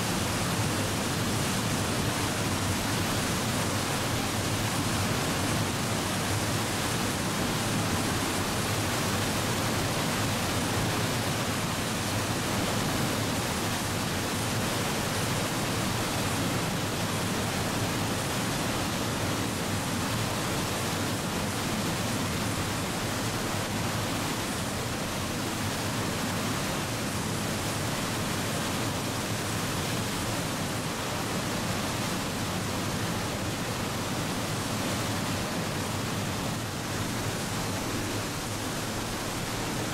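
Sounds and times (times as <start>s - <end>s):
water rushing over rocks: 0.0s - 39.9s.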